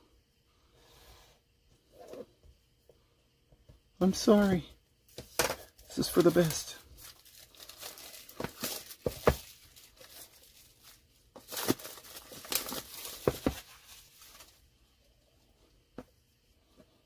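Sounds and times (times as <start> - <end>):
plastic packaging crinkling: 5.6 - 14.6.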